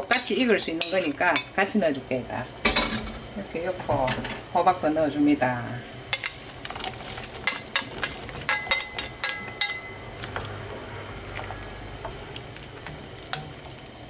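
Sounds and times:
metal utensil clinking in pot: 7.4 - 10.0.

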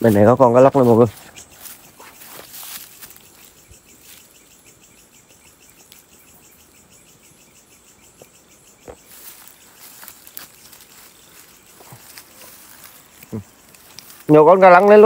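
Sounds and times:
crickets trilling: 0.0 - 15.0.

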